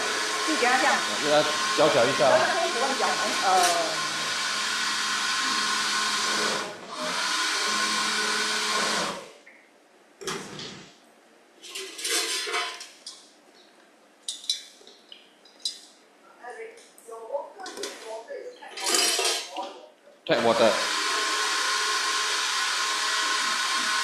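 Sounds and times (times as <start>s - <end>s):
electric blender running: 0.0s - 9.4s, 20.4s - 24.0s.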